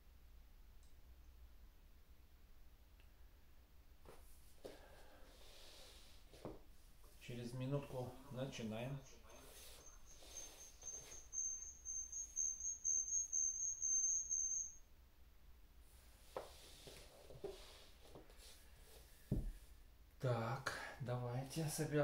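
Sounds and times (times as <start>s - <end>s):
high-pitched electronic beeping: 9.2s - 14.8s.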